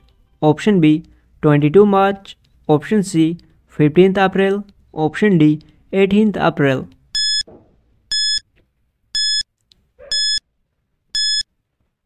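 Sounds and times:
short high-pitched electronic beeps: 10.1s - 10.4s, 11.2s - 11.4s.

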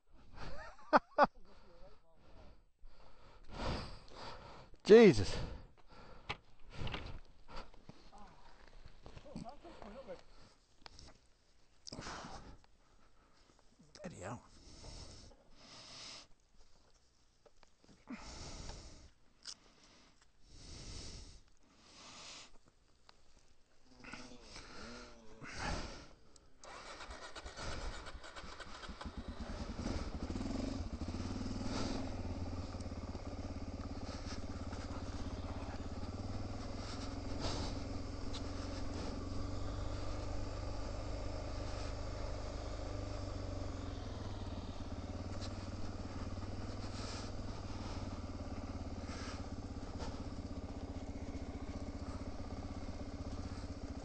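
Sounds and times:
motorcycle engine: 24.0s - 54.0s.

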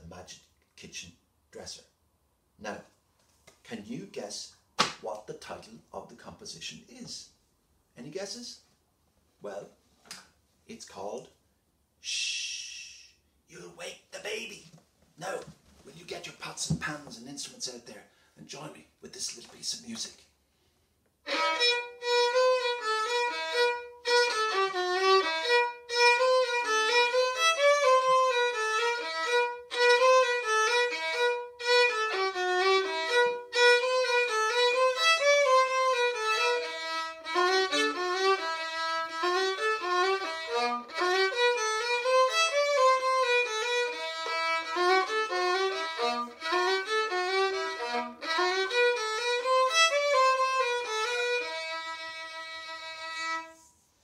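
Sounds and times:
solo violin playing a tune: 21.2s - 53.6s.

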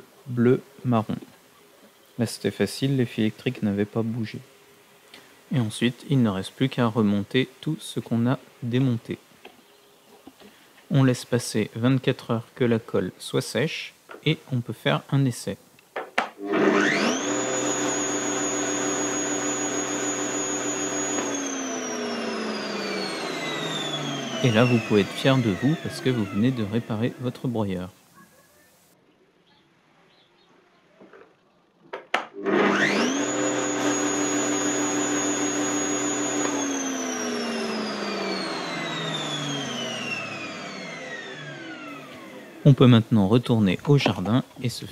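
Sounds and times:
electric shredder motor whining: 16.4s - 27.4s, 32.4s - 42.7s.

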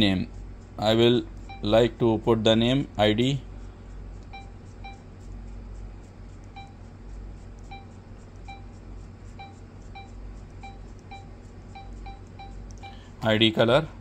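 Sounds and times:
low hum: 0.0s - 14.0s
short beeps: 6.6s - 6.8s, 9.4s - 13.1s.

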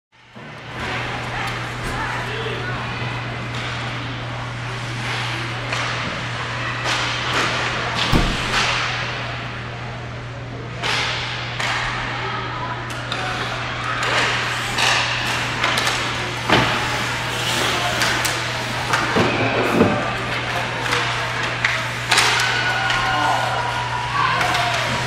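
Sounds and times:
hockey sticks clacking: 5.0s - 6.1s, 6.8s - 9.0s, 12.9s - 25.0s
skate blades scraping ice: 14.4s - 23.2s.

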